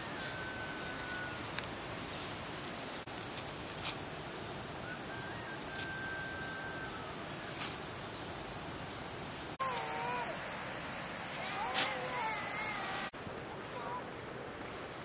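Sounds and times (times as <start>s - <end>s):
high-pitched insect chorus: 0.0s - 13.1s
faint thin whistle: 0.2s - 1.4s, 4.8s - 7.8s.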